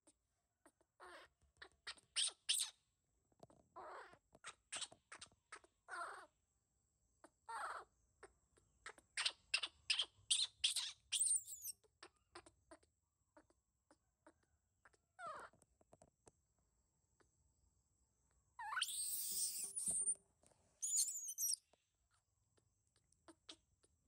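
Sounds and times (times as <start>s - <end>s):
baby monkey crying: 18.6s - 20.2s, 20.8s - 21.6s.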